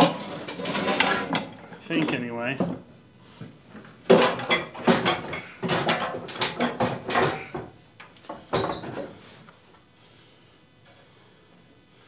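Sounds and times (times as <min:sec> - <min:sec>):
metal clanking and rattling: 0:00.0 - 0:01.8, 0:04.1 - 0:07.6.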